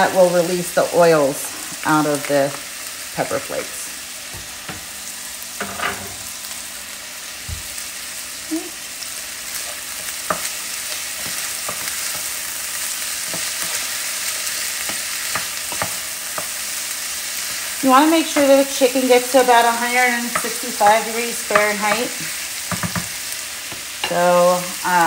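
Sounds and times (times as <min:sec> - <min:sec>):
chicken sizzling in a pan: 0:00.0 - 0:25.0.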